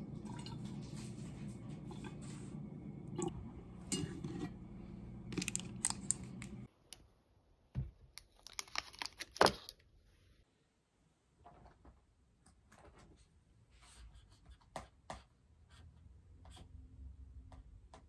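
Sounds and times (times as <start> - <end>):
low hum: 0.0 - 6.7
wrapper crinkling: 5.3 - 6.6, 8.2 - 9.8.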